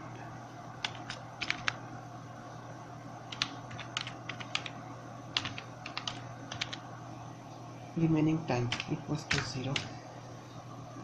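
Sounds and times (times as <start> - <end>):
keyboard typing: 0.8 - 1.8, 3.3 - 6.8, 8.6 - 9.9.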